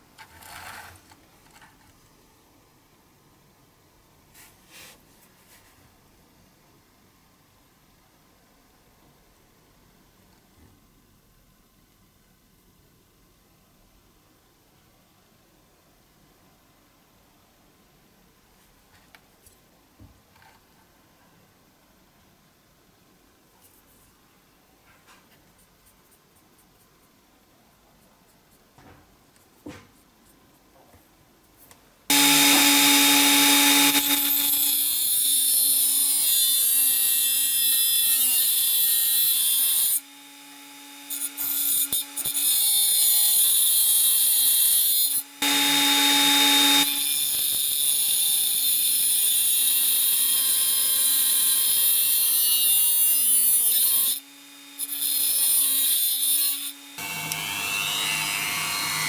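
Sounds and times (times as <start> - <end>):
grinder motor whine: 32.1 - 35.2, 45.3 - 47.0.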